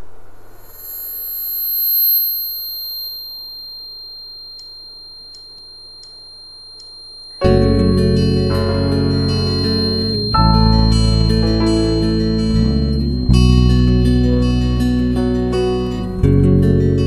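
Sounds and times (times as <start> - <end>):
steady high-pitched tones: 0.0 - 16.1
keyboard-led band playing: 7.5 - 16.0.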